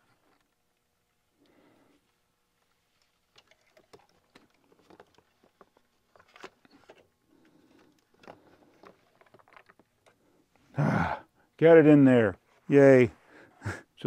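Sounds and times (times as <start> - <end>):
plastic bricks clicking and knocking: 7.8 - 10.1.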